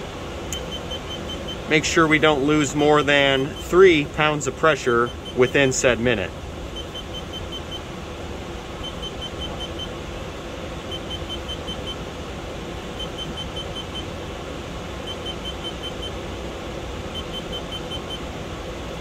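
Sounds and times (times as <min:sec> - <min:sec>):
steady low hum: 0:00.0 - 0:19.0
electronic warning beeps: 0:00.6 - 0:06.0, 0:06.7 - 0:07.9, 0:08.8 - 0:10.0, 0:10.8 - 0:12.0, 0:12.9 - 0:14.2, 0:15.0 - 0:16.2, 0:17.1 - 0:18.3.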